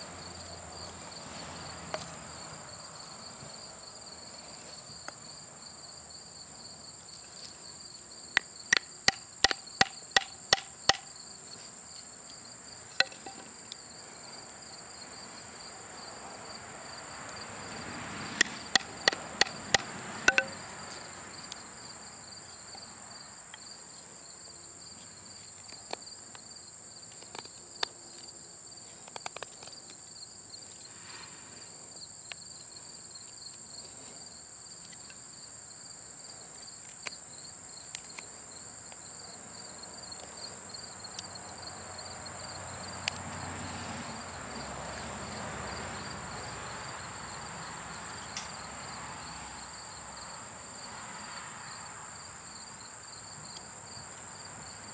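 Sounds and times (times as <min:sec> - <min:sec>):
crickets chirring: 0:00.0 - 0:54.9
knife knocking into wood: 0:20.3 - 0:20.6.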